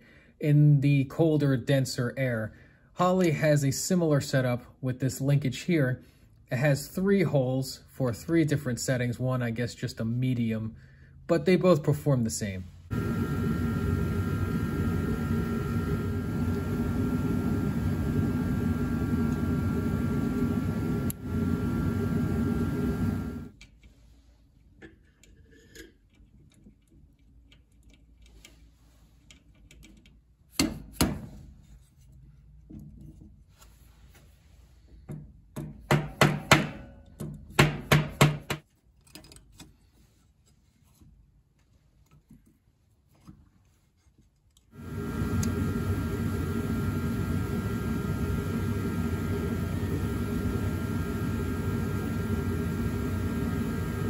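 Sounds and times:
loud humming machine noise: 12.9s - 23.5s, 44.8s - 54.0s.

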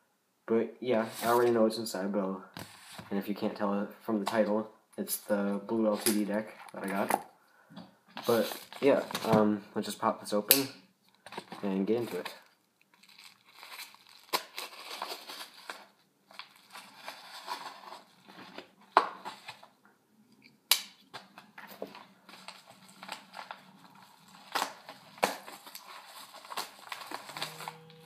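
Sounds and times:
paper rustling and crinkling: 11.2s - 19.8s, 21.1s - 27.8s
knife slitting envelope: 22.4s - 27.8s.

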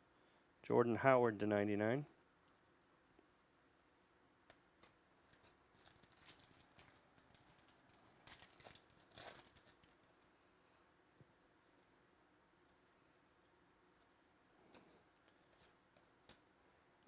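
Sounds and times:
foil pack ripping: 5.2s - 10.1s
foil wrapper crinkling: 5.2s - 10.3s.

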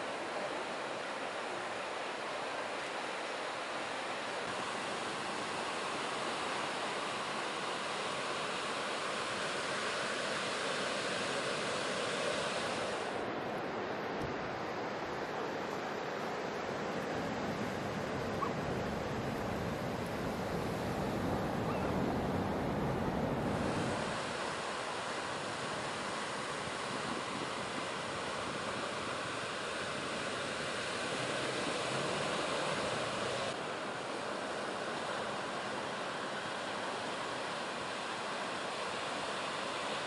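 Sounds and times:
ocean surf breaking: 14.8s - 40.0s.

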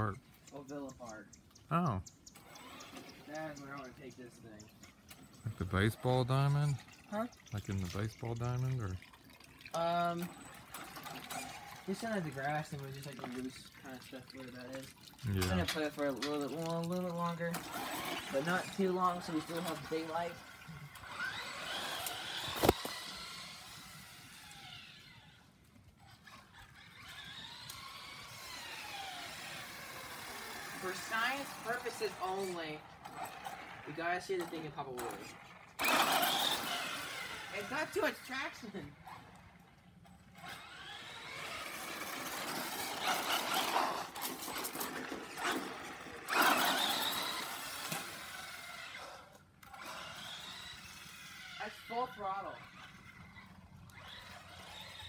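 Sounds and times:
toy truck electric motor whining: 2.4s - 9.0s, 9.7s - 13.6s, 17.1s - 55.0s
tyres rushing on concrete: 29.3s - 38.6s, 40.5s - 48.5s.

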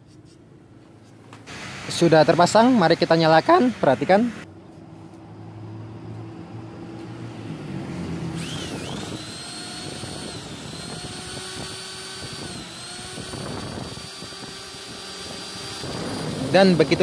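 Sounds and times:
angle grinder whining: 8.3s - 17.0s.

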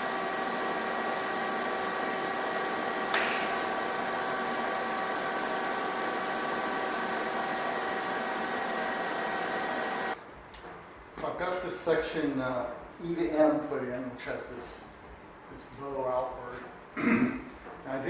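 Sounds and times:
welding arc hissing: 3.1s - 3.9s.

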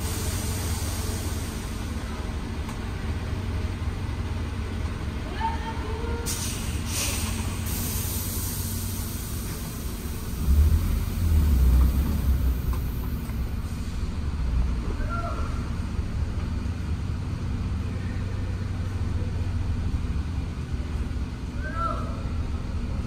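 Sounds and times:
vehicle low rumble: 0.0s - 23.0s
short hiss: 6.3s - 9.9s.

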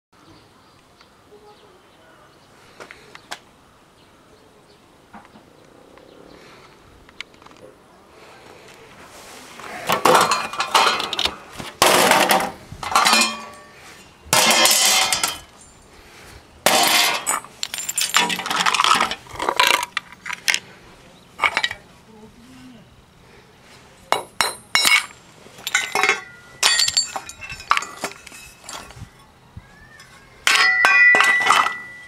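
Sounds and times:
scrap metal clattering: 9.2s - 15.7s, 16.6s - 20.7s, 21.4s - 21.9s, 24.4s - 29.3s, 30.0s - 32.0s.

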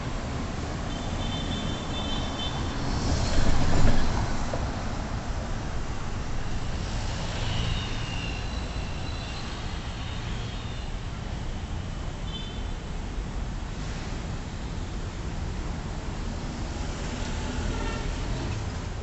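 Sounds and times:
city traffic: 0.0s - 19.0s
faint high squeals: 7.3s - 11.0s.

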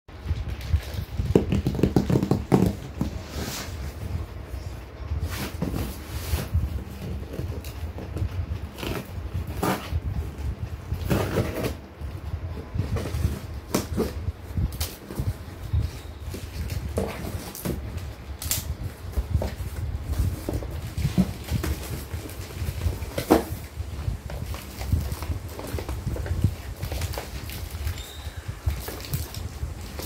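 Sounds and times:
cardboard scraping and rustling: 0.3s - 30.0s
knife slitting packing tape: 18.4s - 18.7s.

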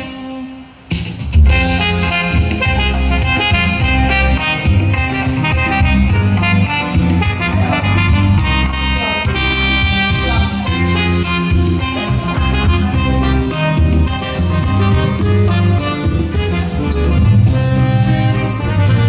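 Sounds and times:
music with heavy bass line: 0.0s - 19.0s.

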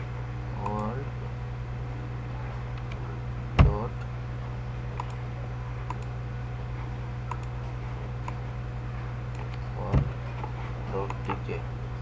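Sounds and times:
low electrical hum: 0.0s - 12.0s
computer mouse clicks: 5.0s - 5.2s, 5.9s - 6.1s, 7.3s - 7.5s.

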